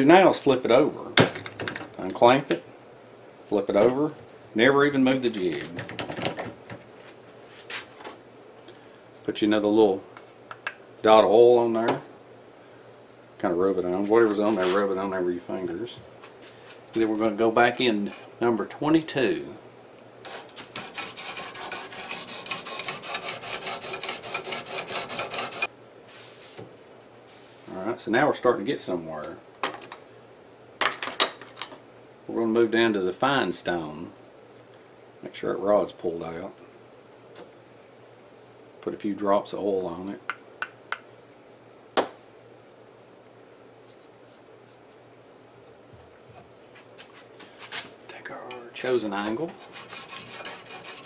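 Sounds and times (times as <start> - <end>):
sharpening stone rasping on steel: 20.3 - 25.7, 49.6 - 51.0.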